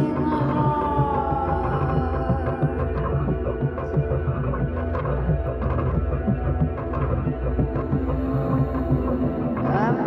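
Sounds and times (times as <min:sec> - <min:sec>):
low steady drone music: 0:00.0 - 0:10.0
pulsing low notes: 0:00.0 - 0:10.0.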